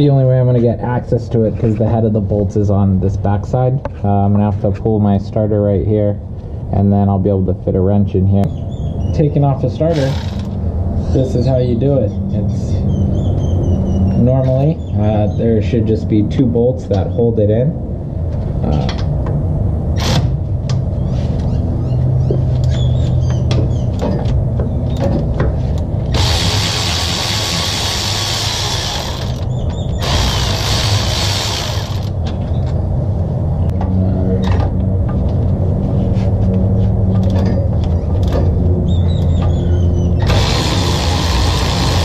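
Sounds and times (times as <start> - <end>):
steady low hum: 0.0 - 42.0
electric ratchet running: 9.9 - 10.6, 20.0 - 20.3, 26.1 - 32.2, 40.2 - 42.0.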